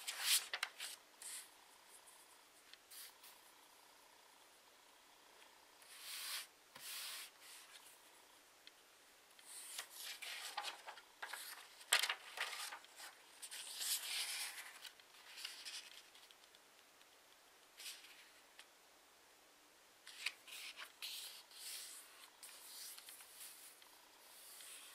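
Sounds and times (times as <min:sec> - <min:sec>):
paper rustling and creasing: 0:00.0 - 0:01.5, 0:09.4 - 0:16.6, 0:20.1 - 0:24.9.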